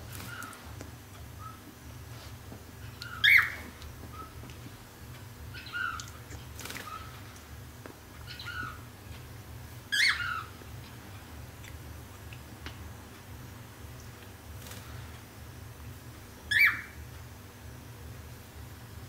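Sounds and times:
cockatiel calling: 0:00.1 - 0:00.6, 0:02.9 - 0:04.4, 0:05.5 - 0:06.2, 0:08.2 - 0:08.9, 0:09.9 - 0:10.6, 0:16.5 - 0:17.0.

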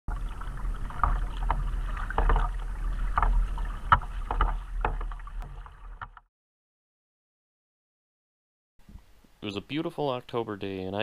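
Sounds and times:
kayak paddle splashing in water: 0:00.1 - 0:06.3.

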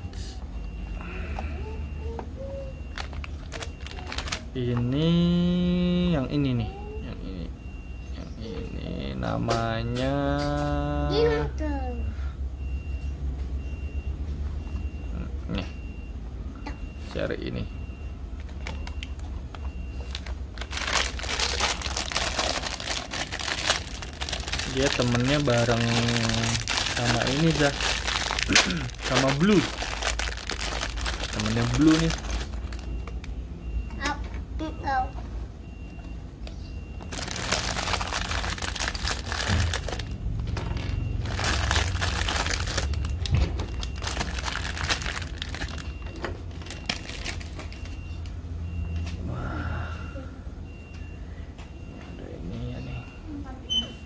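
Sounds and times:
plastic bag crinkling: 0:02.9 - 0:04.6, 0:20.0 - 0:32.9, 0:37.1 - 0:40.2, 0:41.2 - 0:47.8.

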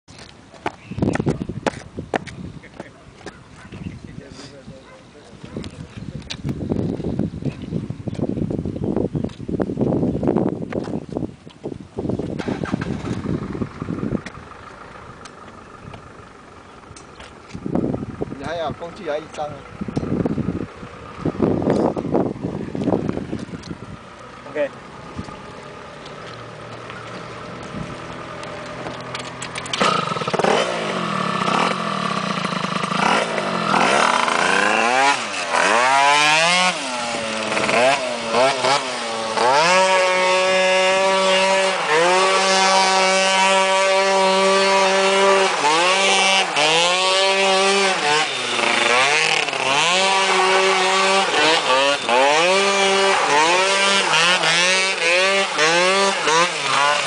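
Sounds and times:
small atv engine revving: 0:12.2 - 0:57.0.

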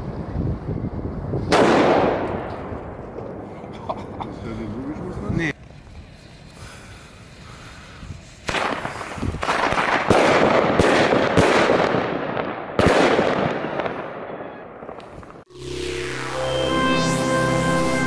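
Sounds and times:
firecrackers banging and crackling: 0:01.4 - 0:04.4, 0:05.5 - 0:15.5.

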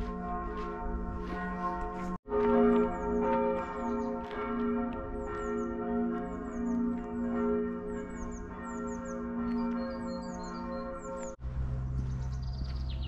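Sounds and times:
church bells pealing: 0:00.0 - 0:13.0
songbird chirping: 0:07.9 - 0:13.0.

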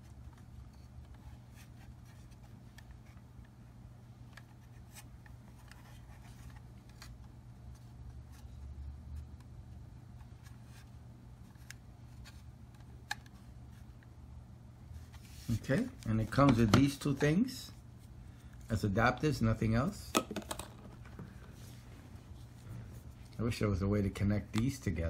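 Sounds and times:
steady low hum: 0:00.0 - 0:25.0
hands handling plastic housing: 0:15.1 - 0:17.4, 0:20.1 - 0:21.6.

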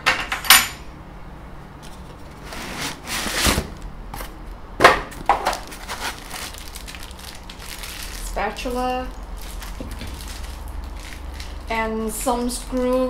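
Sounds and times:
rummaging in cardboard box: 0:01.9 - 0:04.3, 0:05.4 - 0:08.8.

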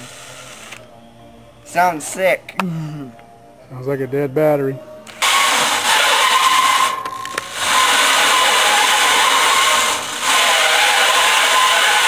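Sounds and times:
electric drill motor whine: 0:00.0 - 0:00.8, 0:05.1 - 0:12.0
abrasive wheel grinding metal: 0:05.2 - 0:12.0.

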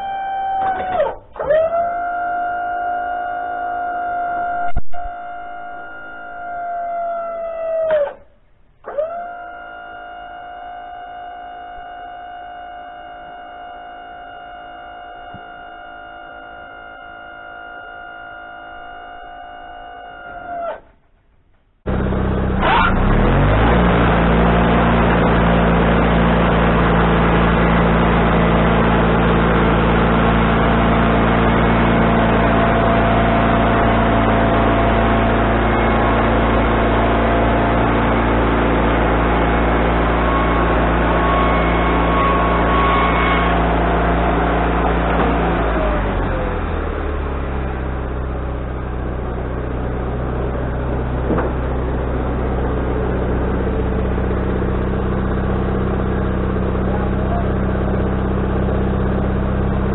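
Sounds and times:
band sawmill running: 0:21.9 - 0:59.9.

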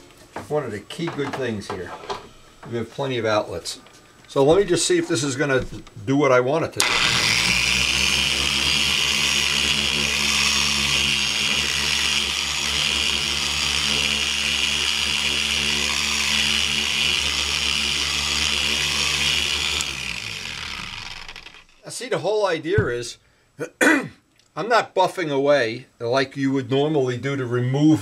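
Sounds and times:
polisher pad hissing: 0:06.8 - 0:21.6
electric polisher running: 0:06.8 - 0:21.8
polisher spinning down: 0:06.8 - 0:21.8.

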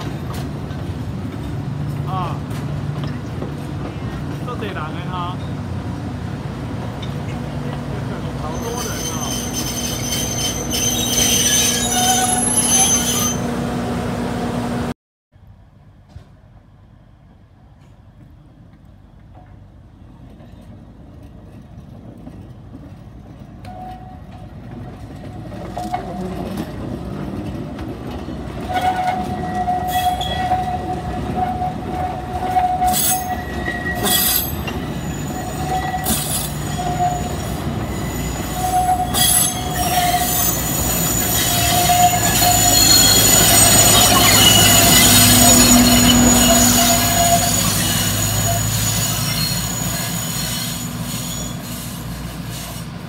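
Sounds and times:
train rolling past: 0:00.0 - 0:14.9, 0:15.6 - 0:53.0
diesel locomotive engine rumbling: 0:00.0 - 0:53.0
wheel flanges squealing: 0:08.1 - 0:13.5, 0:28.5 - 0:52.9.

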